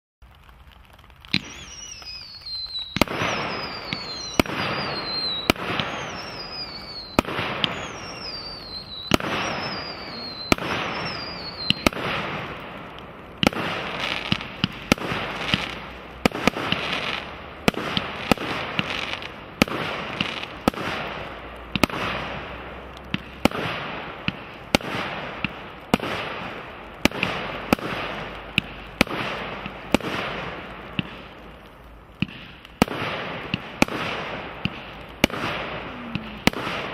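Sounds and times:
firework effects bursting: 0.2s - 36.9s
falling firework whistle: 1.3s - 12.5s, 33.9s - 36.9s
firework shells firing: 1.3s - 22.4s, 32.2s - 36.9s.

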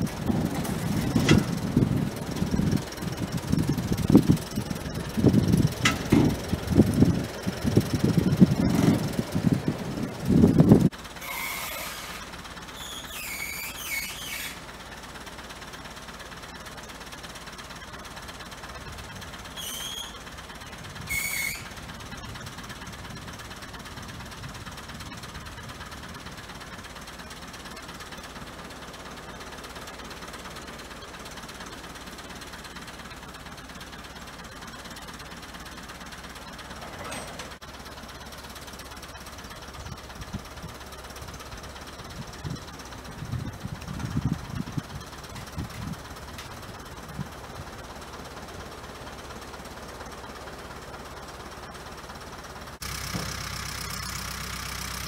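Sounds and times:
distant tractor diesel engine: 0.0s - 55.0s
high-pitched squeals: 11.2s - 14.6s, 19.6s - 20.2s, 21.1s - 21.7s.

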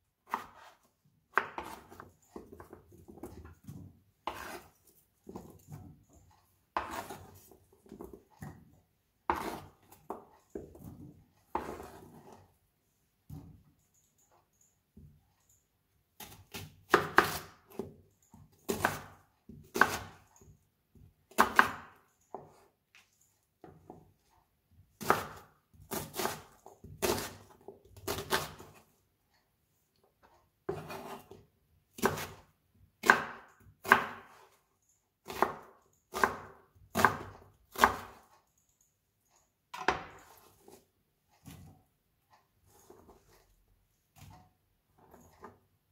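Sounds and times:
knife chopping onion on board: 0.2s - 4.7s, 6.7s - 8.7s, 9.3s - 12.4s, 16.2s - 18.0s, 18.6s - 20.3s, 21.3s - 22.6s, 25.0s - 28.8s, 30.7s - 32.4s, 33.0s - 34.5s, 35.2s - 38.2s, 39.7s - 40.8s.

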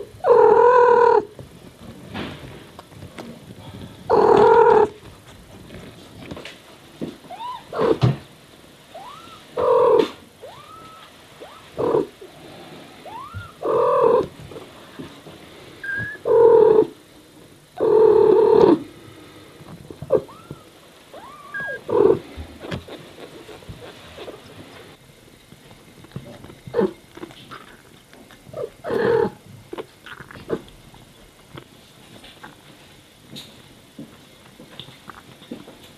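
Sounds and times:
kittens mewing: 4.1s - 5.0s, 7.2s - 8.2s, 8.9s - 12.2s, 13.0s - 14.4s, 15.8s - 17.0s, 20.0s - 25.0s
cat chirping meows: 7.3s - 8.0s, 8.9s - 12.1s, 13.0s - 14.3s, 15.8s - 16.4s, 20.1s - 22.2s.

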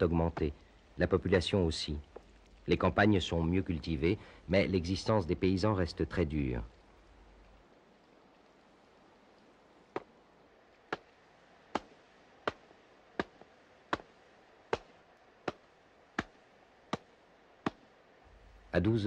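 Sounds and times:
wet laundry beaten on wooden board: 11.7s - 17.9s.

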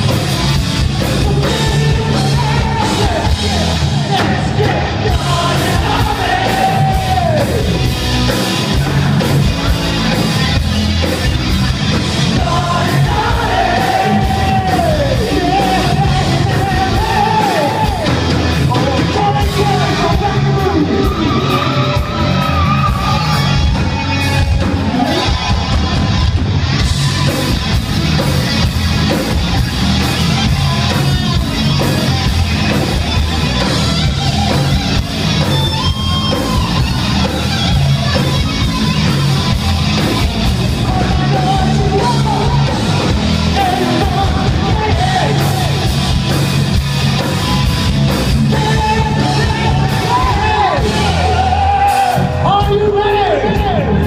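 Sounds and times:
rock band playing: 0.0s - 54.0s
man singing: 1.2s - 7.7s, 12.3s - 21.9s, 40.8s - 45.8s, 48.4s - 53.9s.

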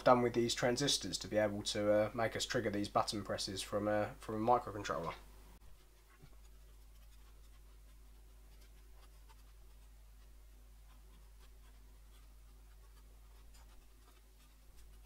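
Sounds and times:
low steady hum: 0.0s - 15.0s
marker squeaking on paper: 5.6s - 15.0s.

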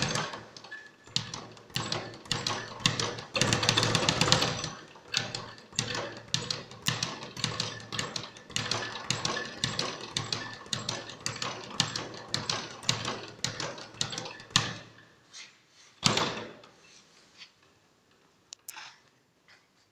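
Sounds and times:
speed bag being punched: 0.0s - 0.5s, 1.1s - 14.9s.

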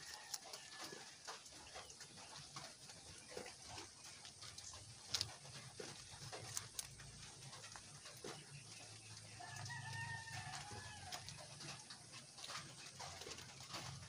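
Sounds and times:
faint rooster crowing: 0.0s - 1.6s, 9.4s - 11.8s
rabbit chewing crunchily: 0.0s - 14.0s.

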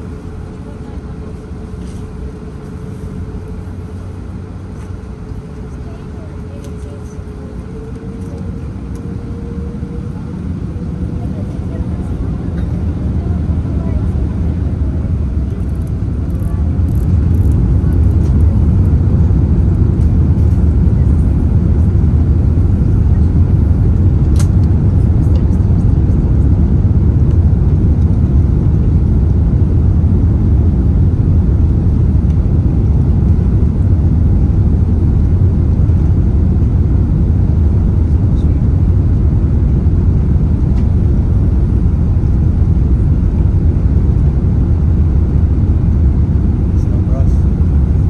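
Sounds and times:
jet engines low rumble: 0.0s - 48.0s.

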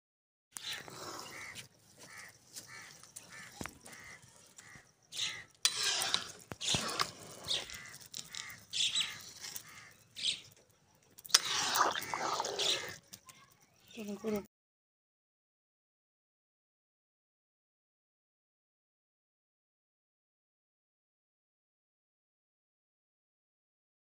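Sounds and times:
bird calling: 0.6s - 10.6s, 11.3s - 13.0s
spoon stirring rice in pot: 5.2s - 9.5s.

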